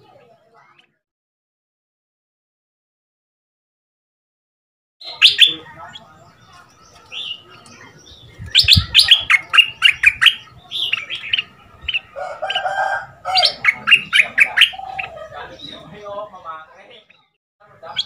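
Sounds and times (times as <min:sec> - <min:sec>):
bird singing: 0:05.0 - 0:18.0.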